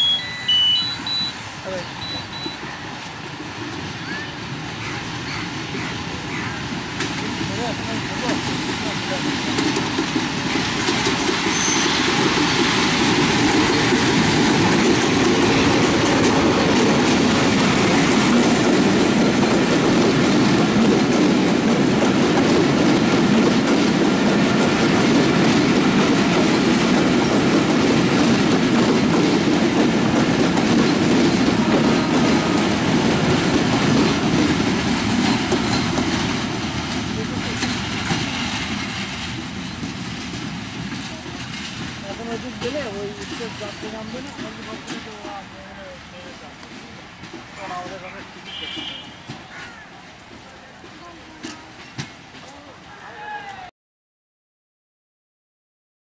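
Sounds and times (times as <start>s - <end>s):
passenger train passing: 0.0s - 53.7s
wheels clattering on rails: 1.1s - 52.6s.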